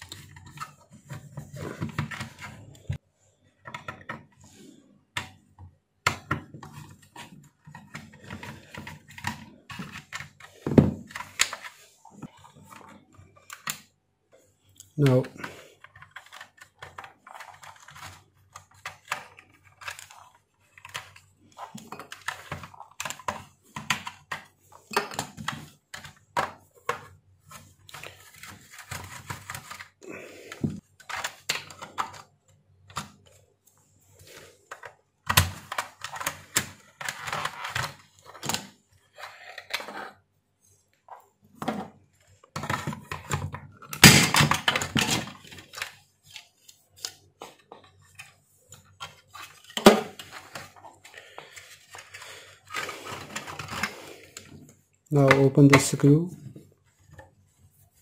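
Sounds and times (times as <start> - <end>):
plastic clicks and scrapes: 14.8 - 33.4, 34.1 - 40.2, 41.0 - 56.0
plastic cover clattering: 41.5 - 56.0.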